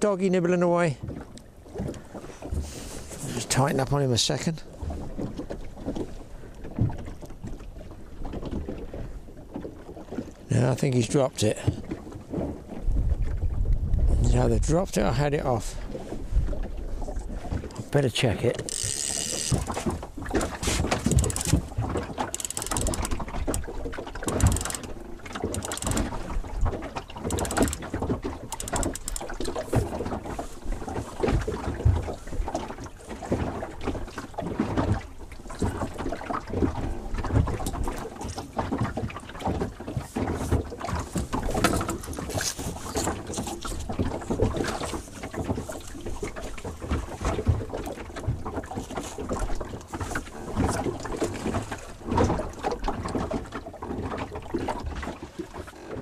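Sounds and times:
waves slapping a hull: 0:00.0 - 0:56.0
wind on microphone: 0:12.5 - 0:15.1, 0:15.7 - 0:17.9
knocks and rattles: 0:18.6 - 0:26.4, 0:27.1 - 0:29.7.

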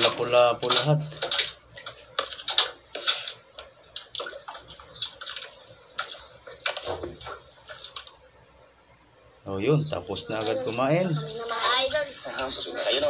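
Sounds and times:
water slapping against boat hull: 0:00.6 - 0:08.1.

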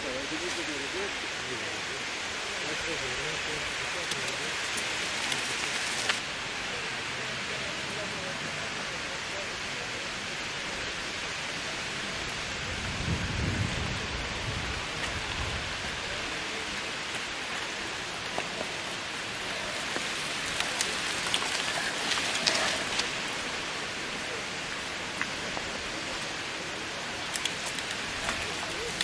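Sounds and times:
bike tyres rolling over gravel: 0:02.6 - 0:06.3, 0:11.8 - 0:29.0.

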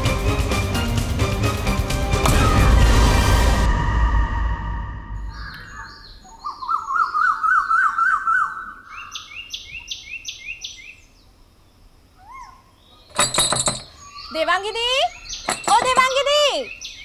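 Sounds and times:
music: 0:00.0 - 0:05.2
birds warbling and chirping: 0:05.2 - 0:11.4, 0:12.1 - 0:17.0.

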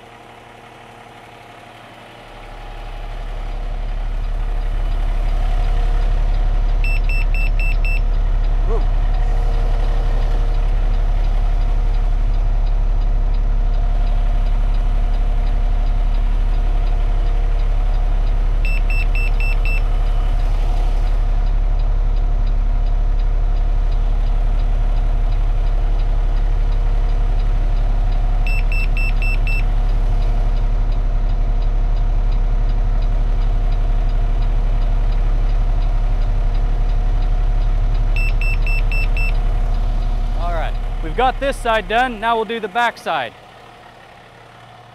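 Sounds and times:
truck diesel engine idling: 0:00.0 - 0:44.9
rapid high electronic beeps: 0:38.2 - 0:39.4.

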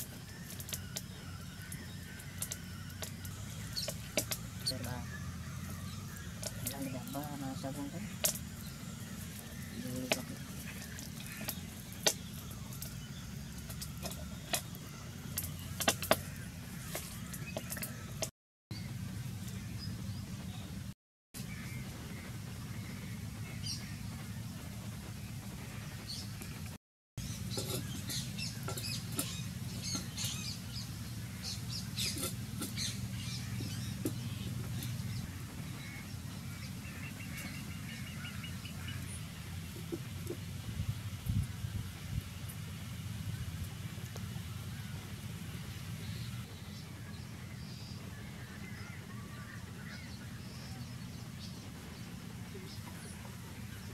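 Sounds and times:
rapid bird trill: 0:00.0 - 0:18.3
birds chirping: 0:00.0 - 0:53.9.

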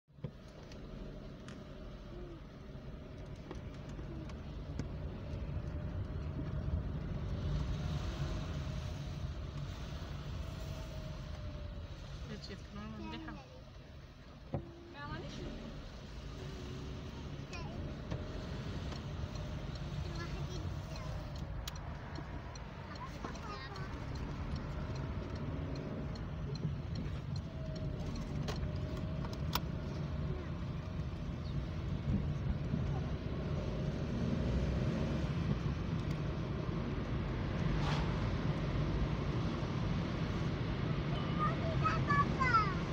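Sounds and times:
car engine and road rumble: 0:00.0 - 0:42.9
faint regular ticking: 0:17.3 - 0:34.2.

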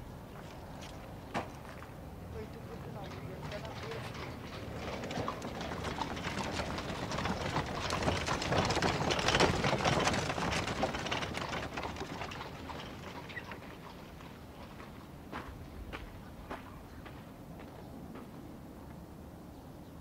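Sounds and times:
clatter of knocks and steps: 0:02.6 - 0:18.3.

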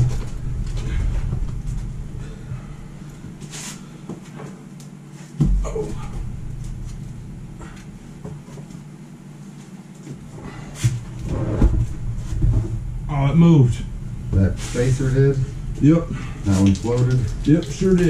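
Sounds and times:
steady low hum: 0:00.0 - 0:18.0
heavy thump: 0:05.4 - 0:08.7.

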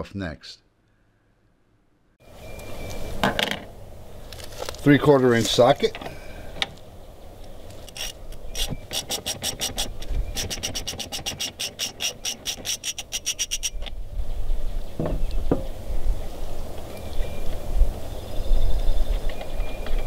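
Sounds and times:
ratchet clicking rapidly: 0:07.9 - 0:13.8
soft knocks: 0:15.0 - 0:15.7.

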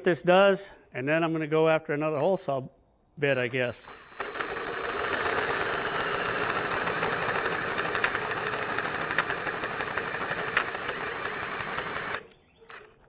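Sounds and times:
cordless drill whining: 0:02.2 - 0:02.5, 0:03.2 - 0:13.0
sharp ticks: 0:03.3 - 0:12.9.

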